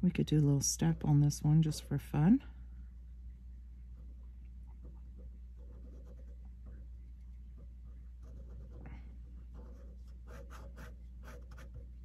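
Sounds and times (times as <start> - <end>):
steady low hum: 0.0 - 12.0
pen scratching on paper: 5.2 - 6.4, 8.2 - 11.8.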